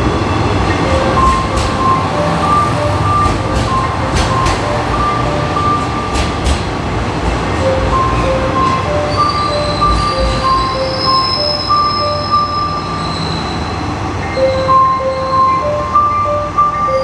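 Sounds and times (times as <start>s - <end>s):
diesel train rumbling past: 0.0s - 17.0s
two-note electronic chime: 14.3s - 17.0s.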